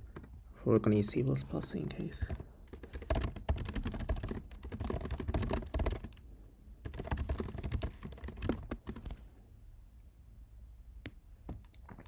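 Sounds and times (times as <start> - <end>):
fast typing on keyboard: 2.2 - 6.2, 6.8 - 9.2.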